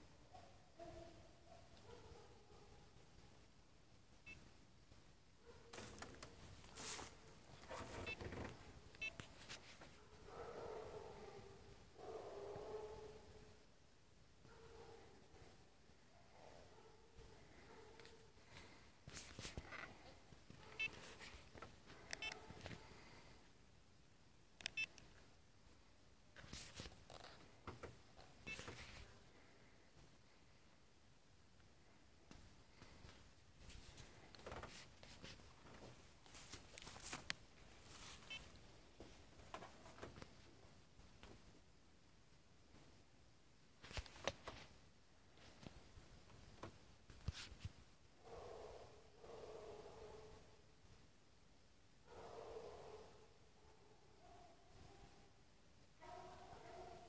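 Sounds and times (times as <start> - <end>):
short rustling: 5.7 - 10.1
distant dog baying: 10.0 - 13.6, 20.6 - 21.1, 48.2 - 50.6, 52.1 - 55.3, 56.0 - 57.0.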